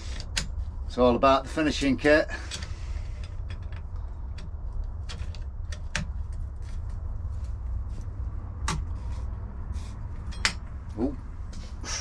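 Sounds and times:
steady low hum: 0.0s - 12.0s
metal pedal clicks and knocks: 10.2s - 10.8s.

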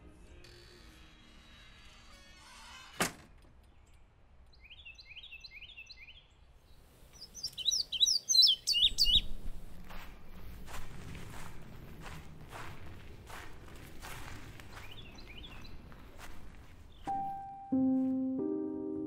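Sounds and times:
songbirds singing: 3.6s - 9.6s, 14.0s - 17.6s.

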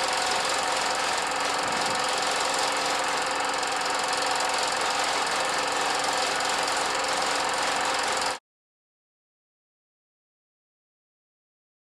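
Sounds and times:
film projector clatter: 0.0s - 8.4s.

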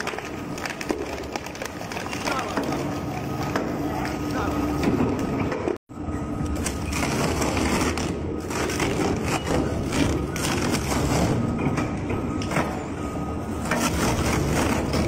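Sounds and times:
shredder grinding rubber tire: 13.7s - 15.0s.

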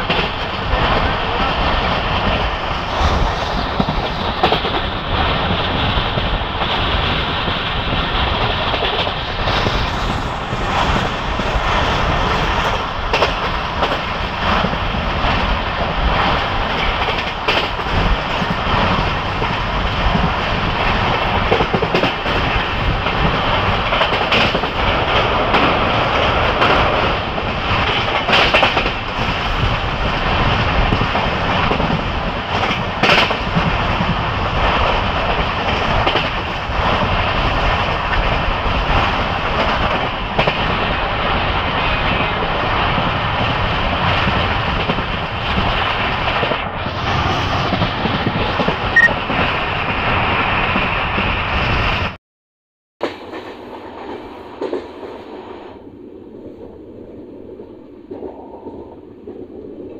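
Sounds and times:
wheels clacking over rail joints: 0.0s - 46.6s
train rumble: 0.0s - 52.2s, 53.0s - 59.9s.

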